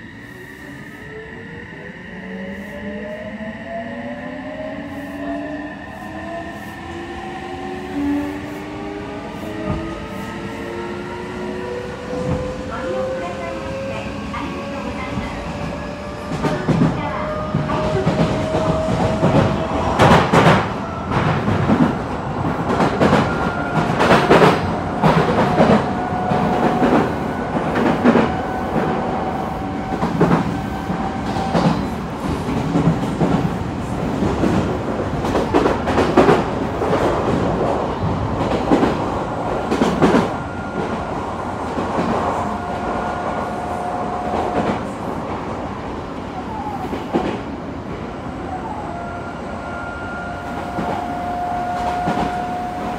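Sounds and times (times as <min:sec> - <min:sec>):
train rumble: 0:04.9 - 0:52.9.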